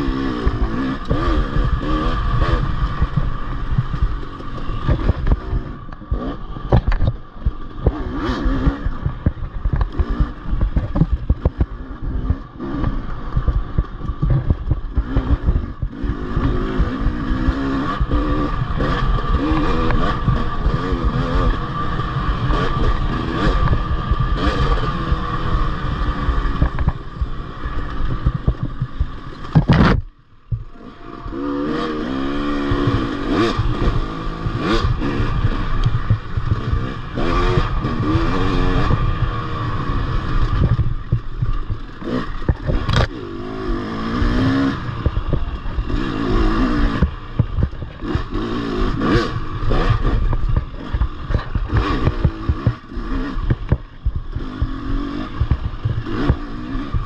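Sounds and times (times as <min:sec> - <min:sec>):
motorcycle engine revving: 0:00.0 - 0:57.0
bike rattling and knocking: 0:00.1 - 0:25.5, 0:26.2 - 0:30.7, 0:31.7 - 0:39.2, 0:40.2 - 0:43.3, 0:44.0 - 0:57.0.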